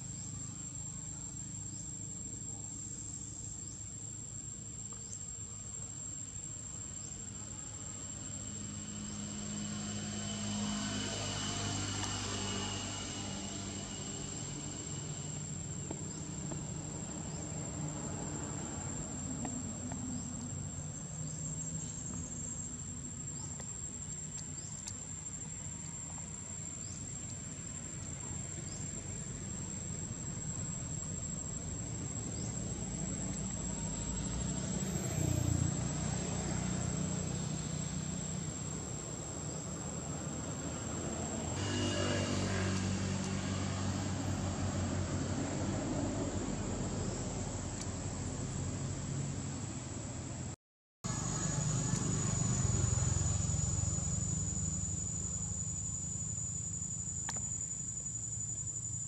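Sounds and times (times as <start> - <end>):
high-pitched insect drone: 0.0 - 49.8, 51.1 - 59.0
low outdoor rumble: 0.0 - 59.0.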